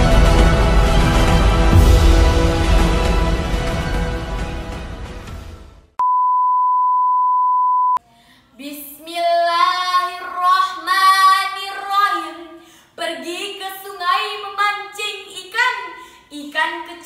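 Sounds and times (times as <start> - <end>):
intro music: 0.0 - 5.9
high-pitched beep: 6.0 - 8.0.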